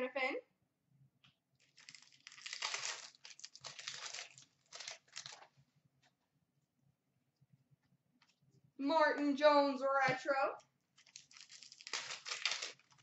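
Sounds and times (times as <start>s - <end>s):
wrapper crinkling and tearing: 1.6s - 5.5s, 11.0s - 13.0s.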